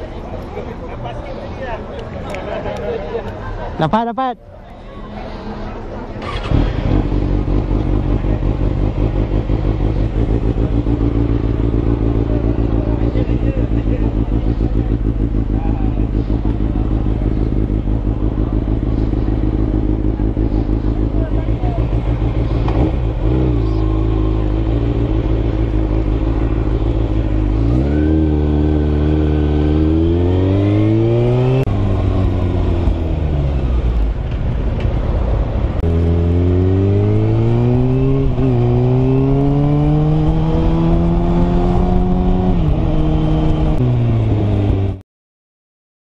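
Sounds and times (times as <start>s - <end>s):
motorcycle engine revving: 6.1s - 45.0s.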